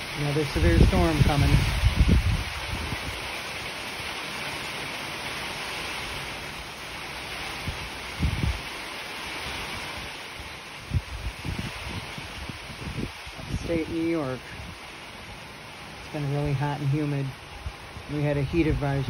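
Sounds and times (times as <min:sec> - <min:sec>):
rain falling: 0:00.0 - 0:19.0.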